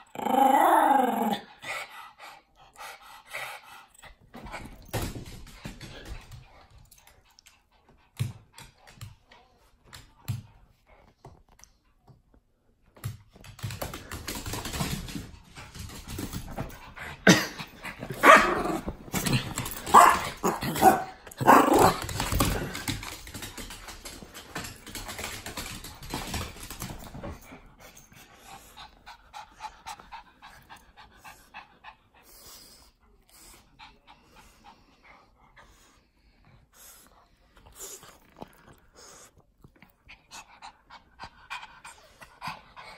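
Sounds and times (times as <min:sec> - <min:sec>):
small dogs panting: 0:01.6 - 0:04.9, 0:24.9 - 0:42.9
small dogs barking: 0:19.9 - 0:22.0.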